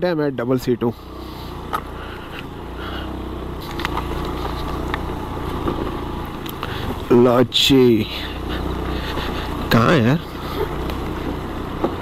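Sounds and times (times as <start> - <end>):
scooter engine running: 0.3 - 12.0.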